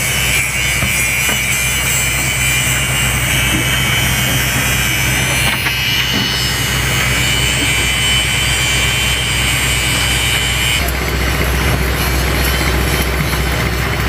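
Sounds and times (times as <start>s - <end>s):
engine idling: 0.0s - 14.0s
high-pitched whine: 0.0s - 14.0s.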